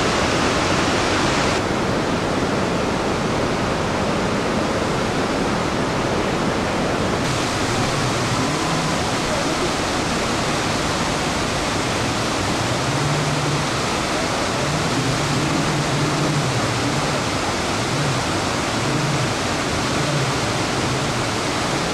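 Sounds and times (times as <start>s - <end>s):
waterfall rushing: 0.0s - 21.9s
low wavering hum: 7.3s - 21.7s.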